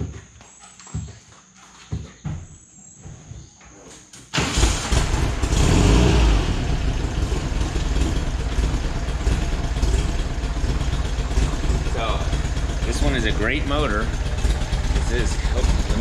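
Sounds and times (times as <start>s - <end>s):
air-cooled engine idling: 4.4s - 16.0s.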